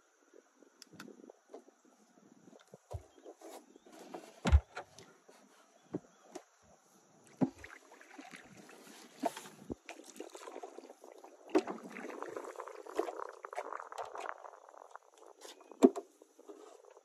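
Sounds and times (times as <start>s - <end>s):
paddle splashing in water: 7.2s - 14.6s
paddle knocking: 7.3s - 7.8s.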